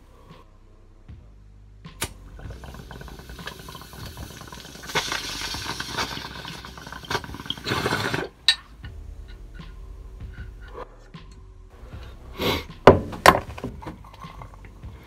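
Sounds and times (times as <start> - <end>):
rush of bubbling air: 2.2 - 8.4
water bubbling in a bong: 2.2 - 8.5.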